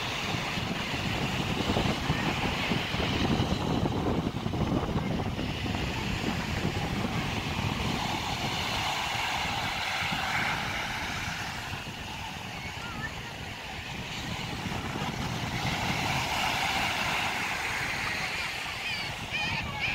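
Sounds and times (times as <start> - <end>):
ocean surf: 0.0 - 19.9
wind buffeting microphone: 0.0 - 19.9.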